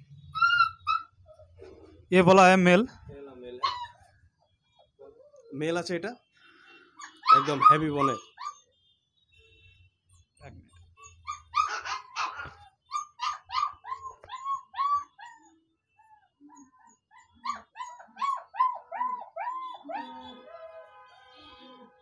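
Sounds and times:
puppy whining: 0.3 - 2.0, 3.6 - 4.1, 7.0 - 8.6, 10.9 - 20.9.

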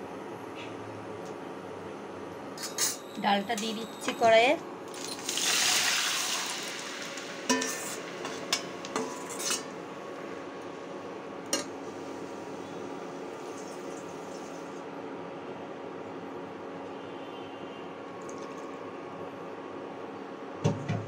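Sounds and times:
food sizzling in hot oil: 4.9 - 9.6
steel ladle clinking against pan: 7.5 - 9.7.

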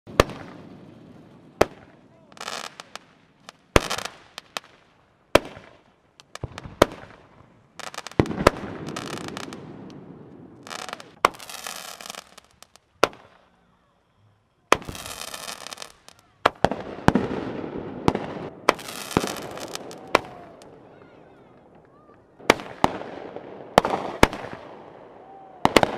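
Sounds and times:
rockets whooshing: 0.1 - 13.4, 14.7 - 21.8
fireworks bangs: 0.1 - 13.7, 14.6 - 25.9.

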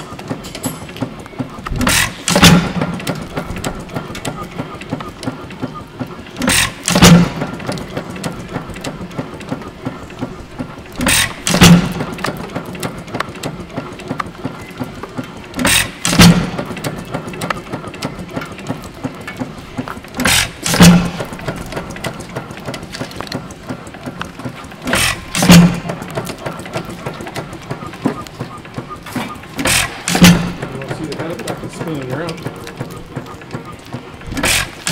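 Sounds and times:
engine clicking while coasting: 0.0 - 34.9
gas engine firing bangs: 1.8 - 4.1, 6.4 - 8.6, 11.0 - 12.5, 15.6 - 17.0, 20.2 - 21.7, 24.8 - 26.1, 29.6 - 31.4.

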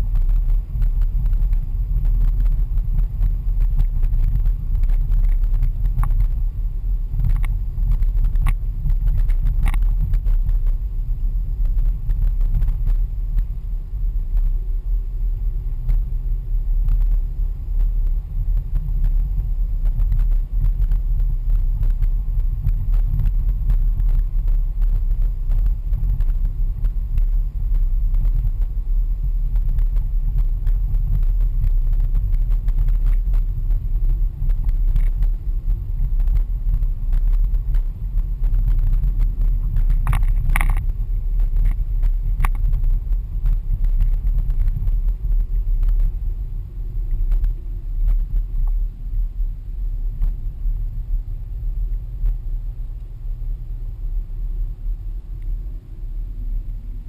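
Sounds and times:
car driving rumble inside cabin: 0.0 - 57.0
faint ticks: 0.1 - 6.4, 7.2 - 10.8, 29.5 - 46.2, 47.0 - 48.8.

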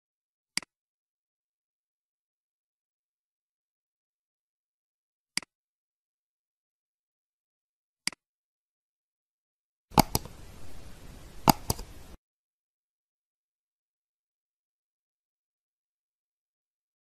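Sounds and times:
computer mouse click: 10.0 - 10.4, 11.4 - 12.1
sharp clicks of sound effect: 10.0 - 10.4, 11.4 - 12.0
faint hiss: 10.0 - 12.2.

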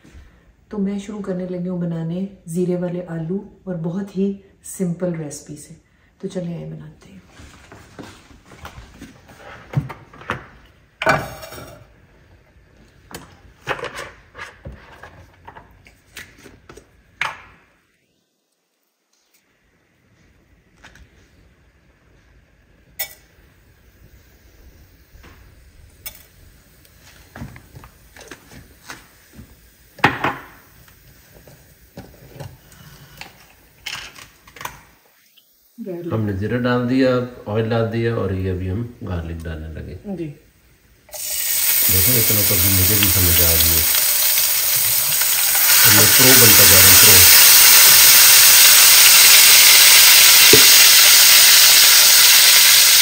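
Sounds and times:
pots and utensils clinking: 11.0 - 11.9, 23.0 - 23.3.

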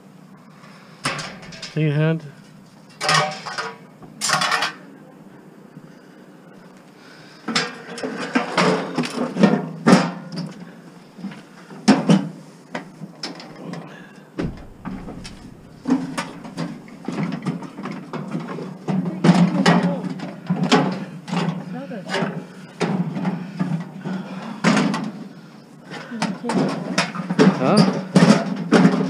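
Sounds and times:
scrap items knocking and scraping: 1.0 - 1.9, 14.4 - 19.5.

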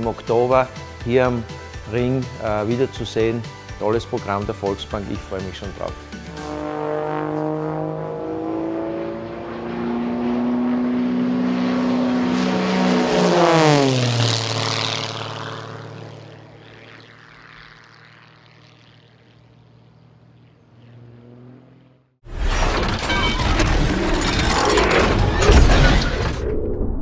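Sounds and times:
propeller plane flying past: 0.0 - 22.2.

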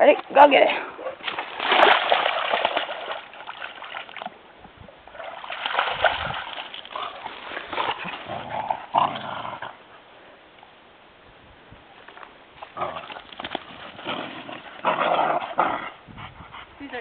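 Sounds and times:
sloshing through wet mud: 1.1 - 4.4, 5.1 - 9.1, 12.6 - 15.6
dog splashing through water: 1.2 - 4.3, 5.1 - 8.6.

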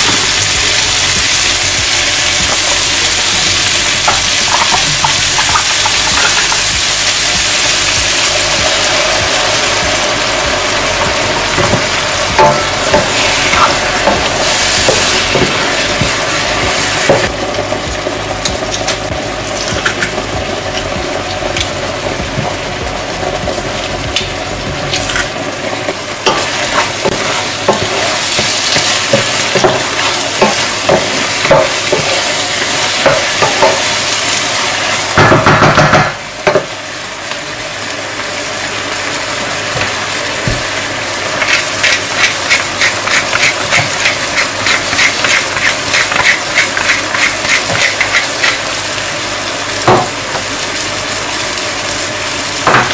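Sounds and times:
food sizzling in a pan: 0.0 - 52.9
utensil scraping a pan: 41.4 - 48.7.

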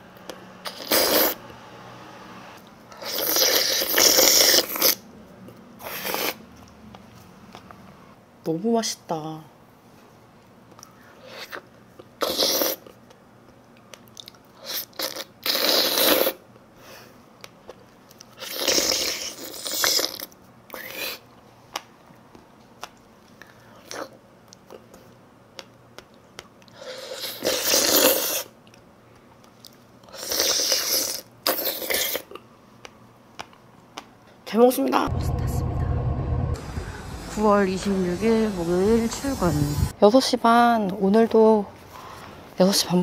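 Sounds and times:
small mouth clicks: 13.8 - 16.4.

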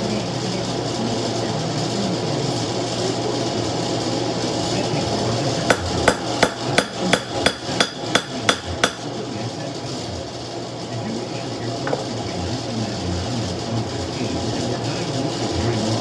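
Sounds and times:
hammer striking on anvil: 5.7 - 9.1.

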